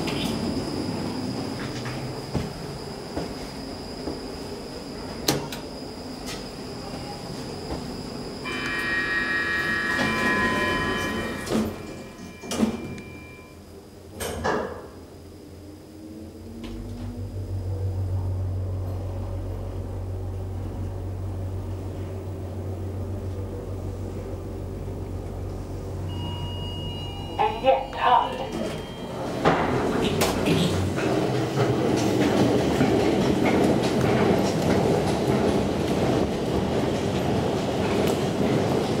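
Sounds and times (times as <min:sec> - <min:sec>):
high electronic tone: 0:08.4 - 0:13.5
elevator doors sliding shut: 0:08.5 - 0:13.5, 0:25.4 - 0:35.3.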